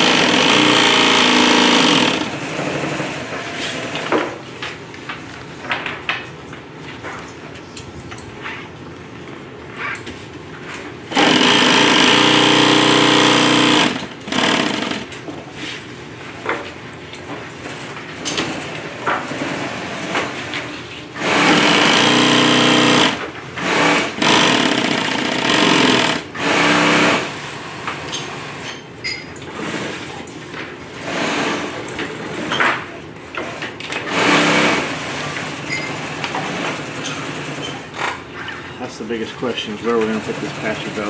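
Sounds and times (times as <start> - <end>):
sewing machine stitching: 0.0 - 4.1, 11.1 - 15.1, 21.2 - 27.4, 33.4 - 37.8.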